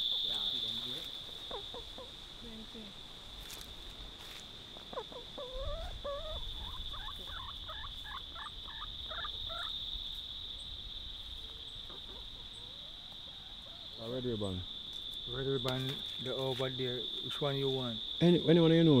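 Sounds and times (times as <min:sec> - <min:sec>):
hens clucking: 0:00.0 - 0:02.2, 0:04.8 - 0:09.8, 0:11.3 - 0:14.1
high insect trill: 0:00.0 - 0:19.0.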